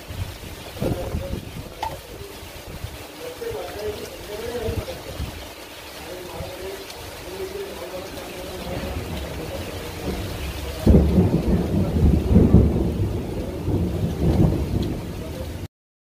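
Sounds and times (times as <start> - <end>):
strong wind: 0.0 - 5.6, 8.7 - 15.6
heavy rain hissing: 0.0 - 15.7.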